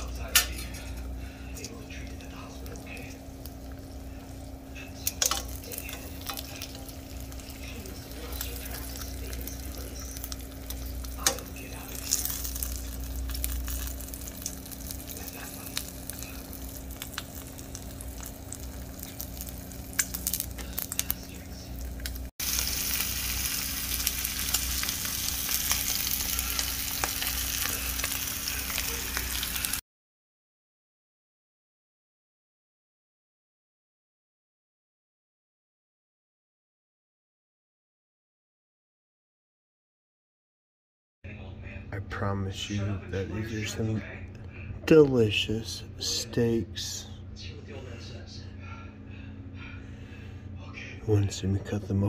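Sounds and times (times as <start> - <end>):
steaks sizzling in skillet: 5.0 - 29.8
fat popping and crackling: 8.4 - 21.1.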